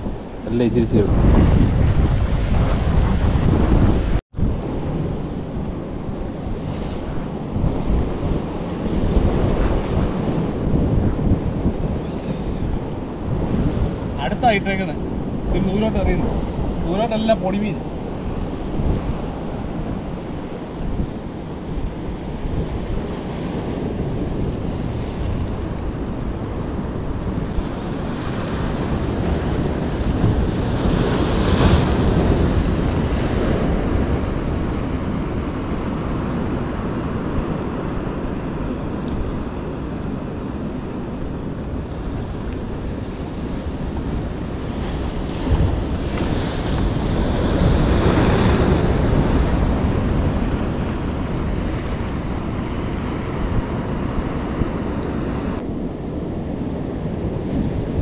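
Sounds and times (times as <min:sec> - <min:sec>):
wind buffeting microphone: 0:00.0 - 0:58.0
waves breaking on rocks: 0:27.4 - 0:39.5, 0:41.4 - 0:54.6.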